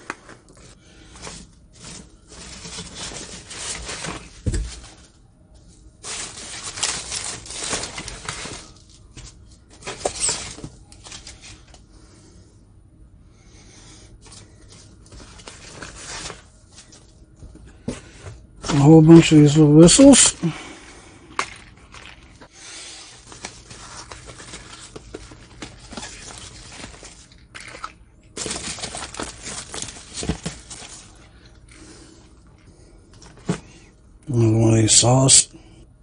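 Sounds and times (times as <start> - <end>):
rustling packing peanuts: 0.0 - 5.2, 6.0 - 11.7, 14.2 - 17.2, 17.8 - 20.8, 21.4 - 32.2.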